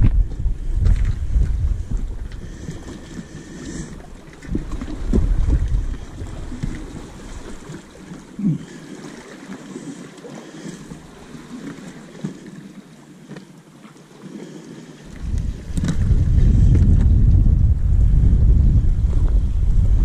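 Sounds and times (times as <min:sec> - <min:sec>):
heavy low rumble: 0:00.0 - 0:02.6, 0:15.1 - 0:20.0
wind buffeting microphone: 0:00.0 - 0:08.6, 0:15.1 - 0:20.0.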